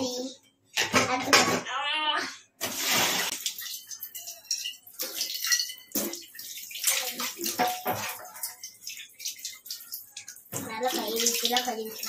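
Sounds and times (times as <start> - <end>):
tap water splashing into sink: 2.6 - 12.0
pan knocking against metal sink: 7.5 - 8.5.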